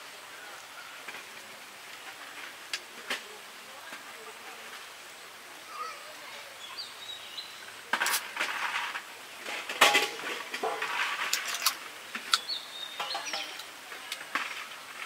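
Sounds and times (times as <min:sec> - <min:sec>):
container clicking and rattling: 0:09.6 - 0:12.4.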